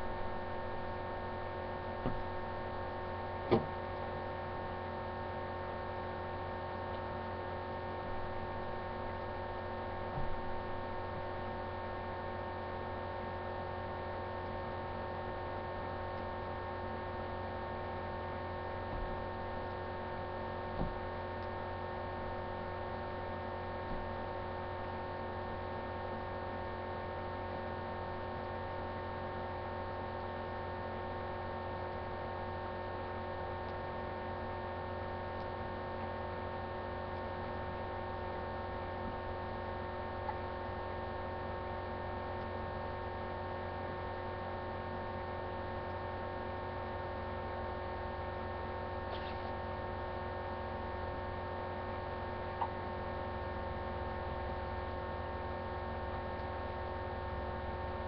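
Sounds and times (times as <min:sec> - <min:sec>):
electrical hum: 0:00.0 - 0:58.0
faint brief knocks: 0:03.5 - 0:03.7.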